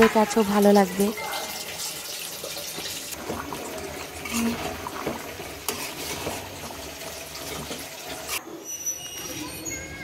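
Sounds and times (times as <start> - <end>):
liquid sloshing in pot: 1.5 - 8.4.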